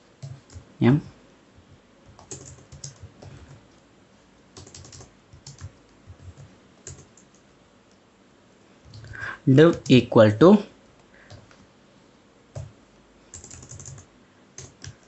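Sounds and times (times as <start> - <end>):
keyboard typing: 0.2 - 0.6, 2.1 - 3.8, 4.6 - 7.5, 8.9 - 10.1, 12.5 - 12.7, 13.3 - 15.0.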